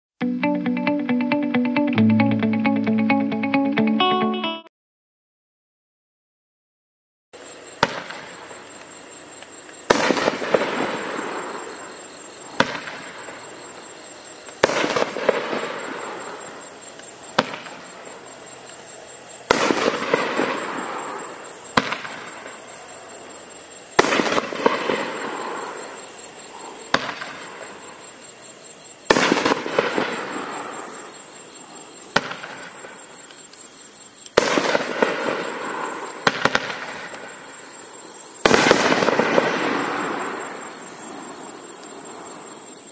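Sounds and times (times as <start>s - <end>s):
firework launch thump: 7.8s - 8.3s, 12.6s - 13.1s
loud aerial firework break: 9.9s - 11.9s, 14.6s - 16.5s, 19.4s - 22.5s, 24.0s - 26.0s, 29.1s - 31.0s, 34.4s - 37.4s, 38.4s - 40.8s.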